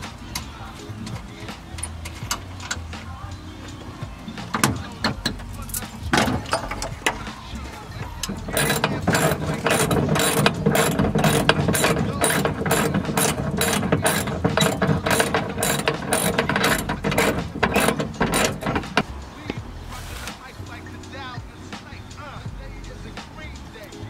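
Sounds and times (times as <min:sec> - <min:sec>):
ratchet wrench clicking: 0:04.5 - 0:07.3, 0:08.2 - 0:19.1.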